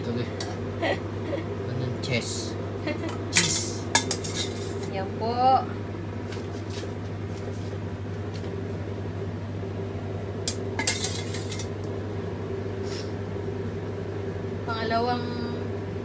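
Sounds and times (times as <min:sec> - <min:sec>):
low steady hum: 0:00.0 - 0:16.0
metal spoon scraping a pot: 0:03.4 - 0:04.9, 0:10.8 - 0:11.7.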